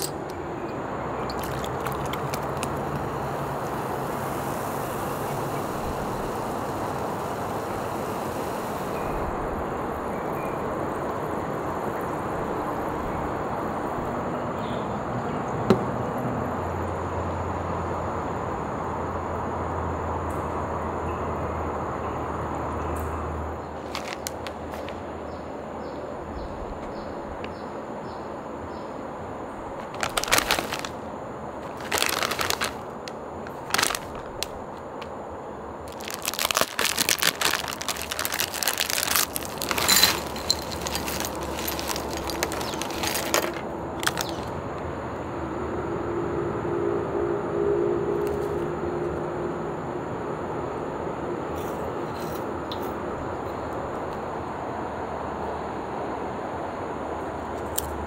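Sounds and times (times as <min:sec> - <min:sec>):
plastic bag crinkling: 0:01.3 - 0:03.8, 0:23.8 - 0:25.0, 0:29.8 - 0:35.1, 0:35.8 - 0:44.6
corn puffs pouring into bowl: 0:01.3 - 0:09.0, 0:23.8 - 0:24.9, 0:29.8 - 0:31.0, 0:31.6 - 0:34.5, 0:35.9 - 0:44.6.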